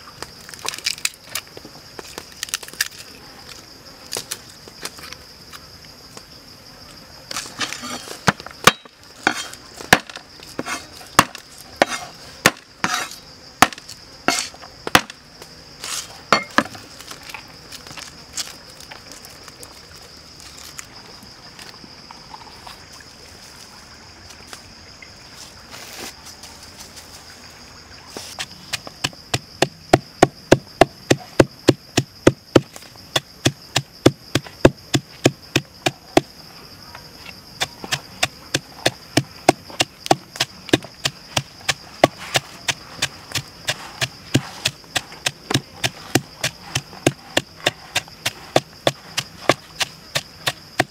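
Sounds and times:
insects shrilling: 6.6 - 20.9, 28.0 - 50.9
pestle pounding in a mortar: 28.7 - 36.3, 37.8 - 50.9.

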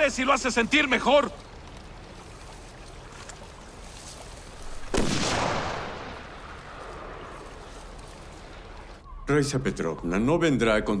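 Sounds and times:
gunshot echoing: 4.8 - 6.3.

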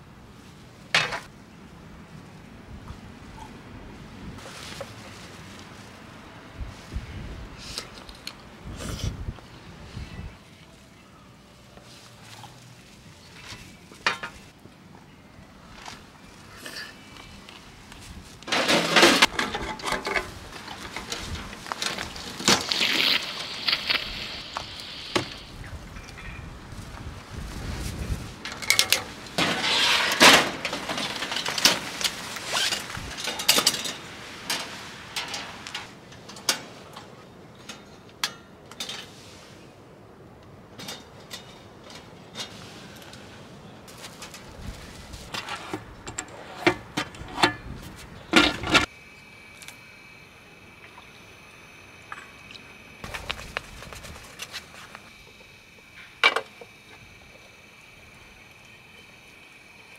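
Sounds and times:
cookware and utensils clattering: 18.5 - 20.3.

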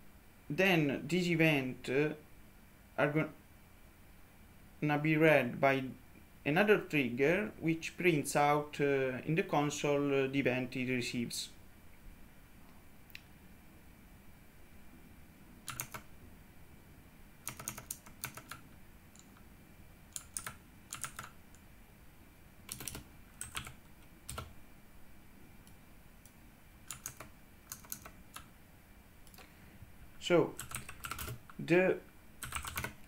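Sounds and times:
computer keyboard typing: 15.6 - 16.1, 17.4 - 18.6, 19.2 - 19.4, 20.1 - 21.4, 22.7 - 24.5, 26.9 - 28.5, 30.6 - 31.6, 32.4 - 33.0.

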